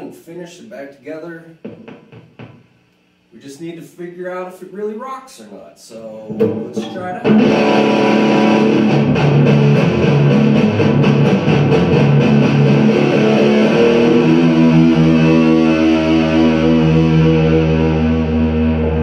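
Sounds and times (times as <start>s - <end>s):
electric guitar chords: 6.3s - 19.0s.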